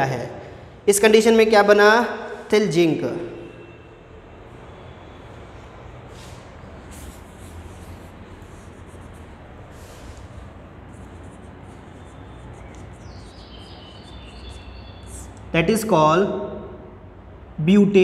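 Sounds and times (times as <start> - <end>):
chalkboard being wiped: 6.1 - 15.4
chalk scratching on board: 6.1 - 15.5.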